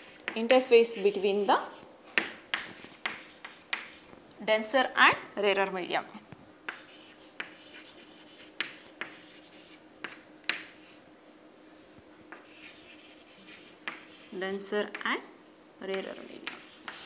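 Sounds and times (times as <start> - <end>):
chalk tapping and scratching: 0.0 - 4.1, 6.7 - 11.0, 11.6 - 14.4, 15.9 - 17.0.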